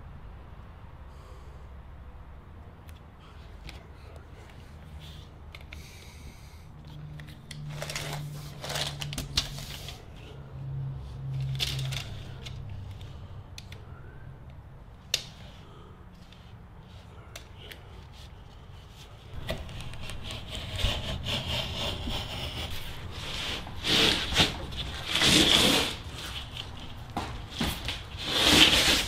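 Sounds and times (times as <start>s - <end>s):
tape measure scraping and rattling: 7.5s - 10.1s, 19.4s - 26.9s, 27.5s - 29.0s.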